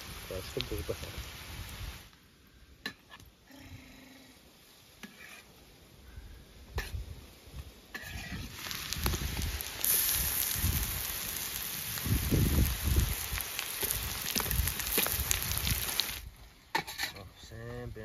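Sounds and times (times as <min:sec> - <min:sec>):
food sizzling in oil: 0:00.0 - 0:02.1, 0:06.7 - 0:17.1.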